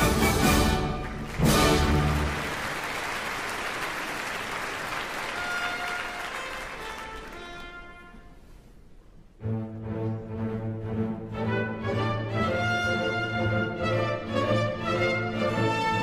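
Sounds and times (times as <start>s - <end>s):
audience applauding: 0.4s - 7.8s
faint held orchestral notes: 5.3s - 16.0s.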